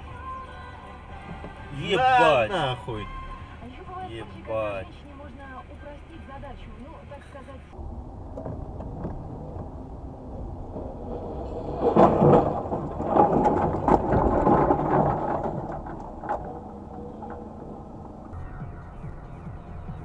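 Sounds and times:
low vehicle rumble: 0:00.0 - 0:20.0
clattering knocks and bangs: 0:07.8 - 0:19.2.

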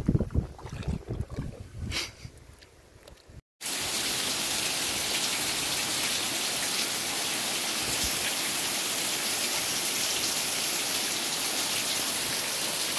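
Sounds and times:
heavy rain pouring: 0:03.6 - 0:12.9.

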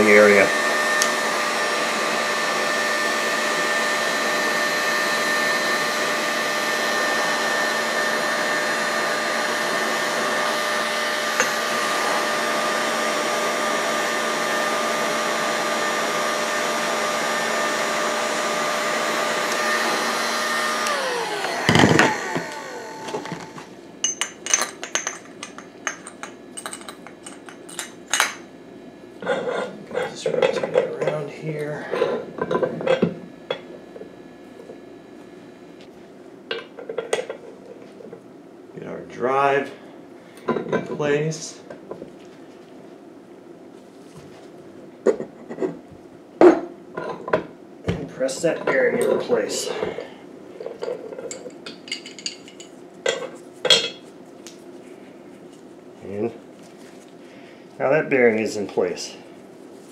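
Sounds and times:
heat gun blowing: 0:00.0 - 0:23.8
fan winding down: 0:00.0 - 0:24.2.

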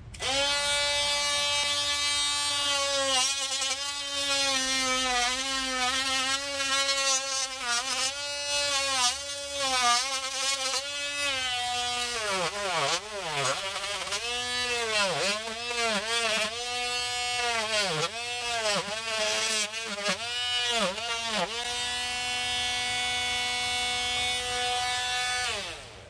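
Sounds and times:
oscillating tool sawing drywall: 0:00.0 - 0:26.0.

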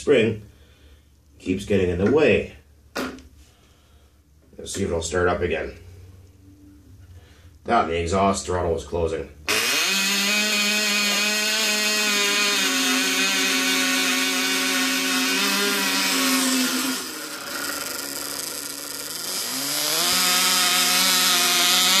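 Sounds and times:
model glow engine buzzing: 0:09.5 - 0:22.0.

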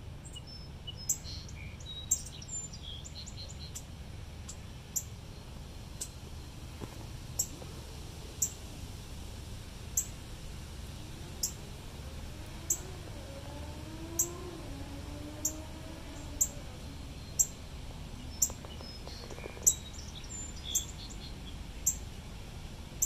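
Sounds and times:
faint bird chirps: 0:18.2 - 0:22.0.

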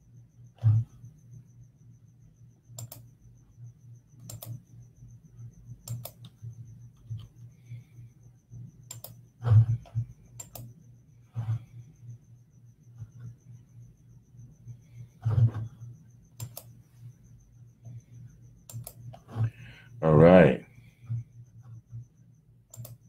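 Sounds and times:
low steady hum: 0:00.0 - 0:23.0
computer keyboard and mouse clicks: 0:02.7 - 0:03.1, 0:04.2 - 0:04.6, 0:05.8 - 0:07.4, 0:08.8 - 0:10.7, 0:16.4 - 0:16.8, 0:18.6 - 0:19.4, 0:22.7 - 0:23.0.

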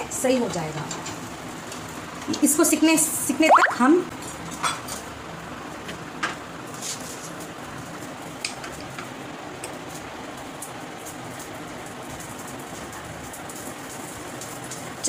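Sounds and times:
food sizzling on a griddle: 0:04.2 - 0:15.0.

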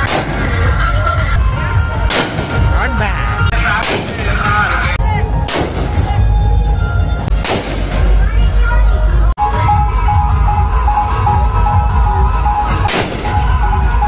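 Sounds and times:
firework tube bangs: 0:03.8 - 0:04.4, 0:05.4 - 0:06.2, 0:07.4 - 0:08.1, 0:12.8 - 0:13.6.

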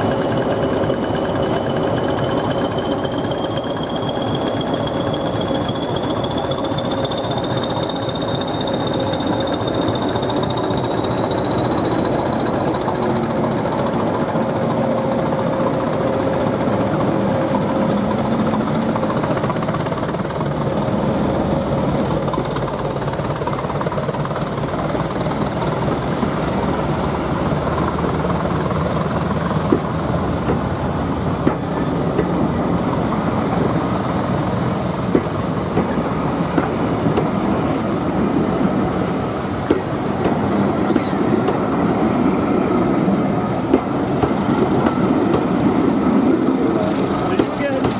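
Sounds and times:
wheel clicks over rail joints: 0:00.0 - 0:14.8
diesel locomotive engine drumming: 0:00.0 - 0:47.9
turbocharger whistle rising: 0:00.1 - 0:31.1.

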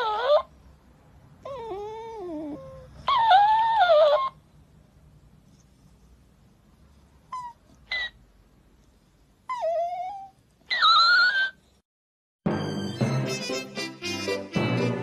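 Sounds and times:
dog squeaking: 0:00.0 - 0:00.5, 0:01.5 - 0:04.4, 0:07.3 - 0:08.2, 0:09.5 - 0:11.7
dog whining: 0:00.0 - 0:00.6, 0:01.4 - 0:04.4, 0:07.3 - 0:08.2, 0:09.5 - 0:11.8.

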